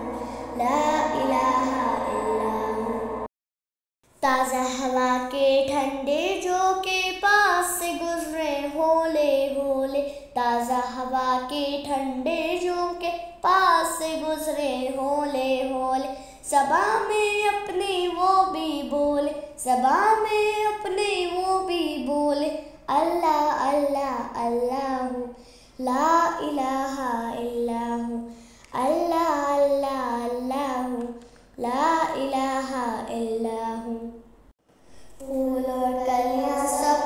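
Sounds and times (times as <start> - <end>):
child breathing: 0.0 - 0.8, 16.1 - 16.4, 25.4 - 25.8, 28.3 - 28.7
child singing: 0.0 - 3.2, 4.2 - 34.1, 35.2 - 37.0.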